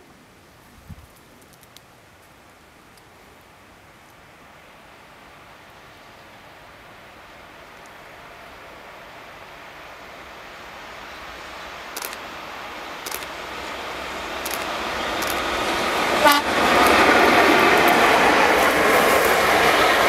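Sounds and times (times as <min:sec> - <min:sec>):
train rumble and rail noise: 0:00.0 - 0:20.0
light clicks: 0:12.0 - 0:12.2, 0:13.0 - 0:13.4, 0:14.4 - 0:15.5.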